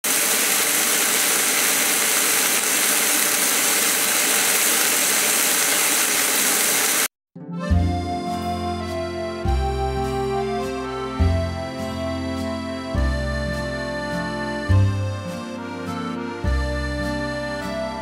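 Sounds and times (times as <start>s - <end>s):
meat sizzling in a frying pan: 0.1s - 7.1s
piano music: 7.4s - 18.0s.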